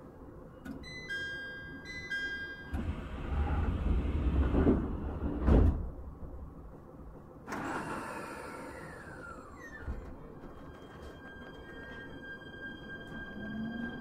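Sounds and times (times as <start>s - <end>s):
two-note door chime: 0.8s - 2.9s
doors closing with thuds: 2.7s - 6.0s
sliding doors rumbling shut: 2.7s - 6.1s, 7.4s - 12.1s.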